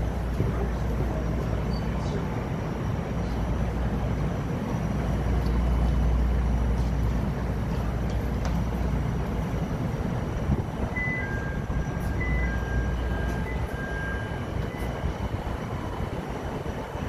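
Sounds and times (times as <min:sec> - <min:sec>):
train car low hum: 0:00.0 - 0:17.0
two-tone door chime: 0:10.9 - 0:15.2.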